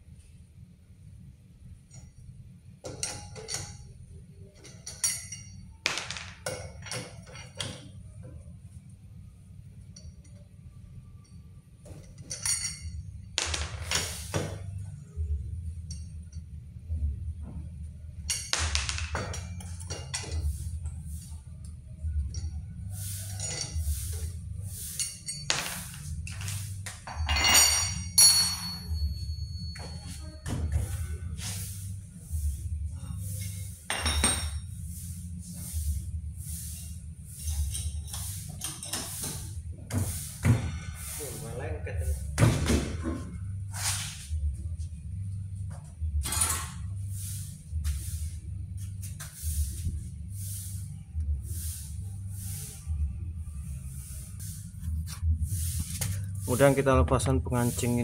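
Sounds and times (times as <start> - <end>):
steady low hum: 0.0 - 58.0
wrench clinking on lug nuts: 2.8 - 4.0, 4.6 - 5.8, 12.0 - 14.2, 24.9 - 30.2.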